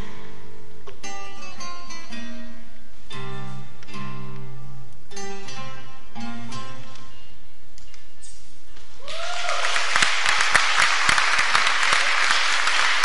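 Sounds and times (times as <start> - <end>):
acoustic guitars: 0.0 - 9.0
audience applause: 9.1 - 13.0.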